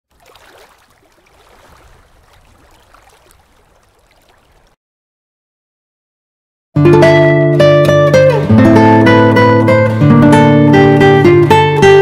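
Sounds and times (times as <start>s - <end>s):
loud guitar music: 6.8s - 12.0s.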